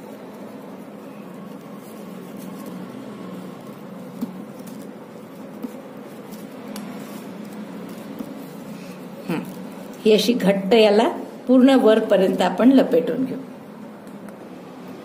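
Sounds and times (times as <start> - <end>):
ribbon ticks and rustles: 0.0 - 10.6.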